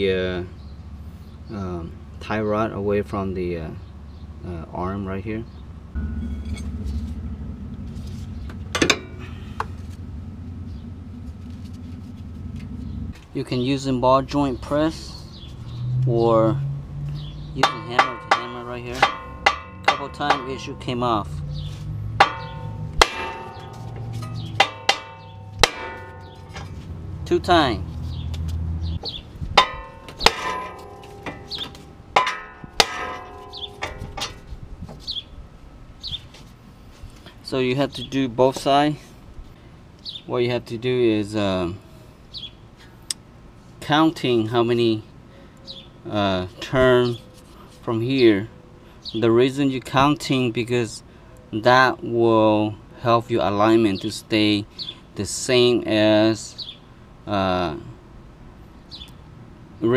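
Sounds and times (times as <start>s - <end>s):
steady low rumble: 4.2s - 39.6s
hammer striking metal: 6.0s - 7.2s, 8.7s - 9.7s, 17.6s - 21.0s, 22.1s - 26.8s, 29.0s - 34.5s
ringing metal clink: 6.0s - 7.2s, 17.6s - 21.0s, 22.2s - 26.8s, 29.6s - 34.5s.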